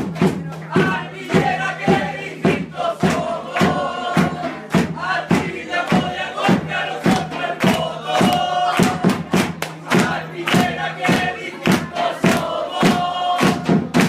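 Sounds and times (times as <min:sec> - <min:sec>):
crowd chanting in rhythm: 0:00.0 - 0:14.0
sharp regular beat: 0:00.0 - 0:14.0.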